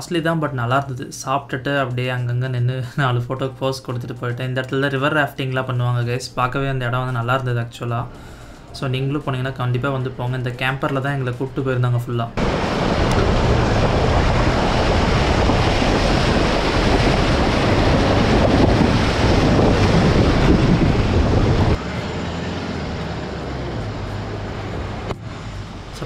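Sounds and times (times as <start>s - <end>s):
water splashing from tyre: 12.4s - 21.8s
vehicle engine running: 12.4s - 26.0s.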